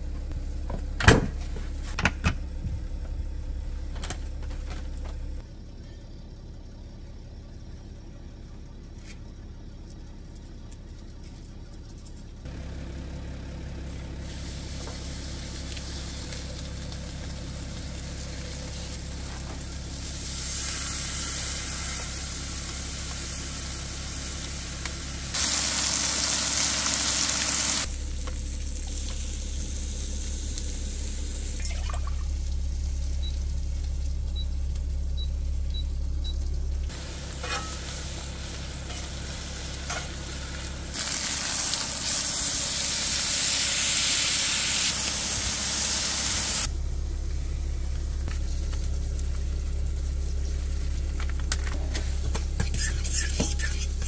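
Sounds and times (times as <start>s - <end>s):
engine idling hum: 0.0s - 54.0s
food sizzling: 14.0s - 34.2s, 36.9s - 46.7s, 52.5s - 54.0s.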